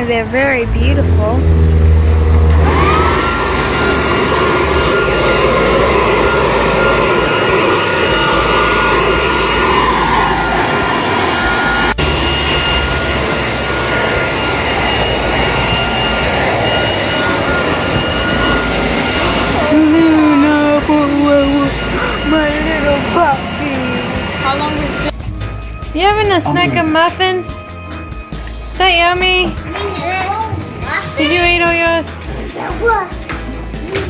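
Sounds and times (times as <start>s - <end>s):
electric blower motor whine: 0.0s - 25.9s.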